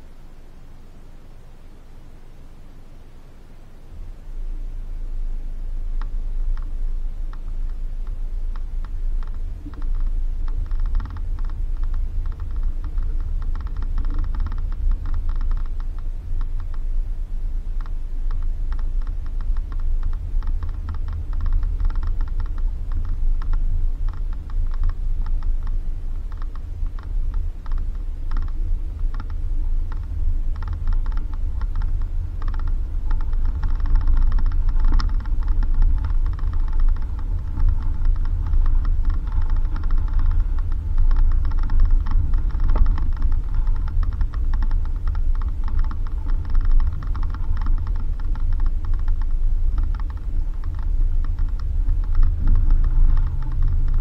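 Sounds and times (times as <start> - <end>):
vehicle low rumble: 0.0 - 54.0
vehicle rattles and creaks: 5.7 - 54.0.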